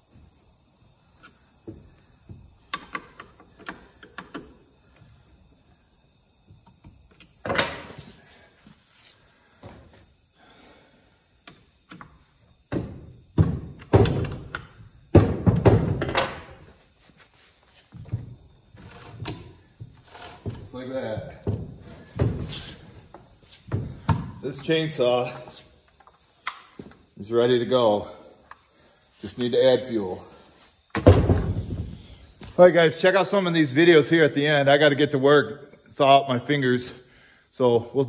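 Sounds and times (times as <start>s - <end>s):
knocks and clatters on workbench: 12.7s - 16.5s, 31.0s - 31.9s.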